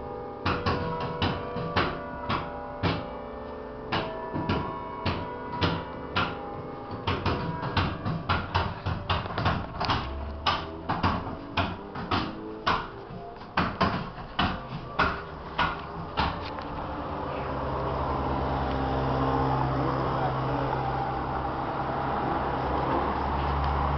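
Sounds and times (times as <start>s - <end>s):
church bells ringing: 0.0s - 23.9s
road traffic hum: 0.0s - 23.9s.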